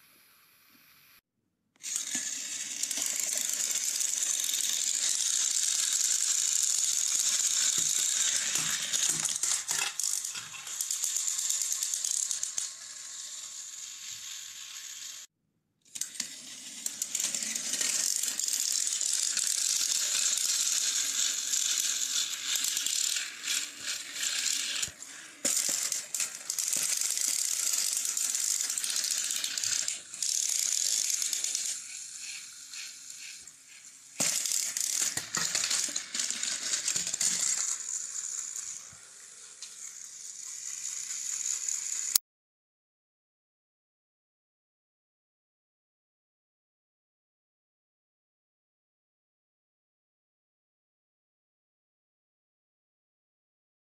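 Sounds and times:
toy train motors whirring: 1.8 - 15.3, 15.9 - 42.2.

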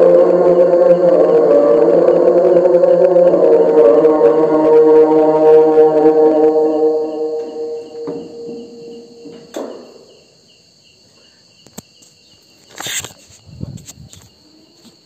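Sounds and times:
call to prayer over loudspeaker: 0.0 - 9.8
crickets chirring: 0.0 - 15.0.

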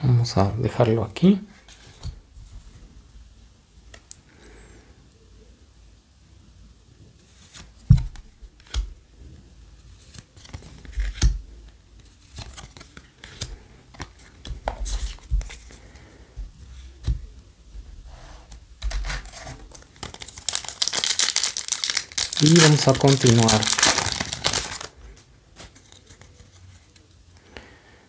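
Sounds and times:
cards clicking and snapping: 10.1 - 11.4, 12.2 - 15.5
handling cardboard box: 18.9 - 24.9.

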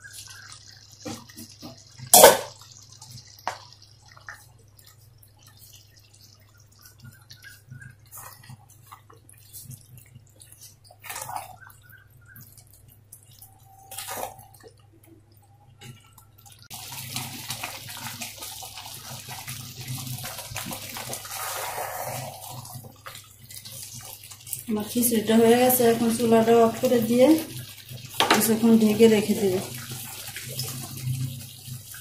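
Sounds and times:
bubbling hiss: 16.7 - 24.0.

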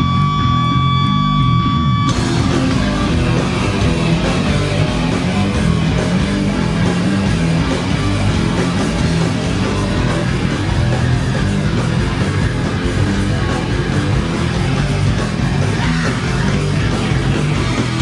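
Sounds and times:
heavy rock music with guitars: 0.0 - 18.0.

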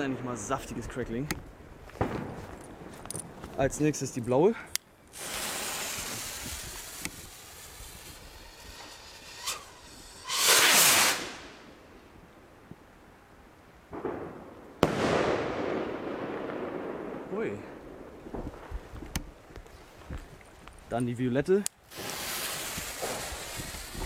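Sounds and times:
firework bang: 2.0 - 2.4, 5.2 - 11.6, 13.9 - 18.8, 21.9 - 24.0
fuse hissing: 5.1 - 11.6
firework rocket whoosh: 5.1 - 11.8, 21.9 - 24.0
stars hissing: 5.1 - 11.8, 21.9 - 24.0.

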